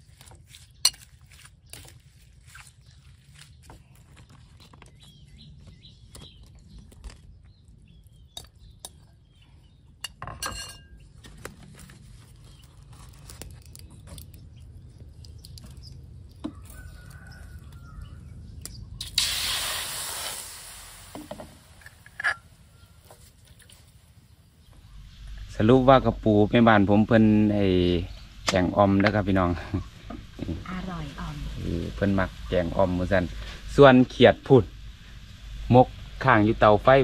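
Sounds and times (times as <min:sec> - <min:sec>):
cookware clicking and knocking: 0:10.1 - 0:11.0
liquid sizzling in a hot wok: 0:19.0 - 0:24.3.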